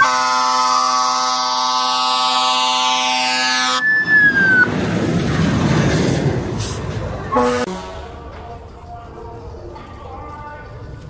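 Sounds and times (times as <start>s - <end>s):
loud steady horn tone: 0.0s - 4.0s, 7.3s - 8.3s
siren sweeping: 0.0s - 4.8s.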